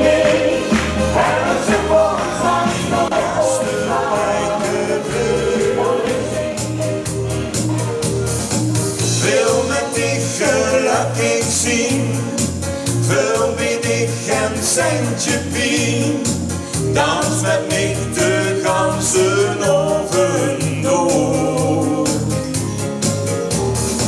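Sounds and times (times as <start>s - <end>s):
dance music bass beat: 0.0s - 9.9s
man and woman singing duet: 9.1s - 22.5s.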